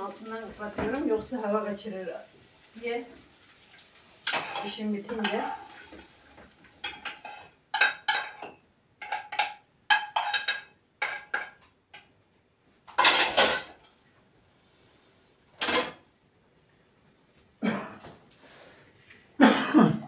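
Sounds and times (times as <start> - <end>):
metal spoon clinking on pot: 6.8 - 12.0.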